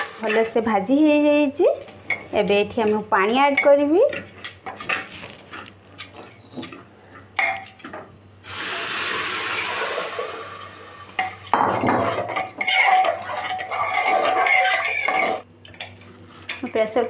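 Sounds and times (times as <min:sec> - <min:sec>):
water poured into hot cooker hissing: 0:08.4 - 0:11.1
spoon scraping a pressure cooker: 0:12.0 - 0:15.4.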